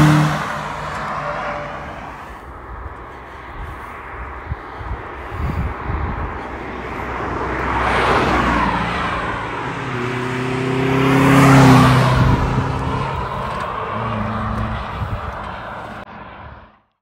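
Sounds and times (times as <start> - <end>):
another car passing: 0.0 - 2.5, 3.2 - 16.8
car engine driving past: 6.9 - 16.7.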